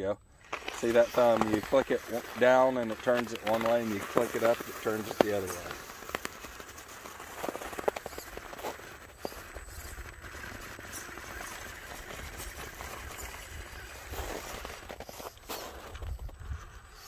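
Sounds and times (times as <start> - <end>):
tyres knocking and scraping on rock: 0.4 - 16.2
low drivetrain hum: 5.1 - 15.4.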